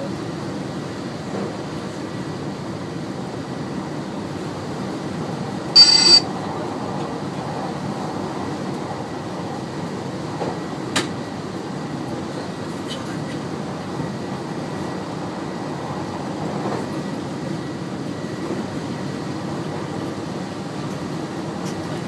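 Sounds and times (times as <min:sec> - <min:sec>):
train rumbling on rails: 0:00.0 - 0:05.7, 0:06.4 - 0:22.0
high-pitched electronic beep: 0:05.8 - 0:06.2.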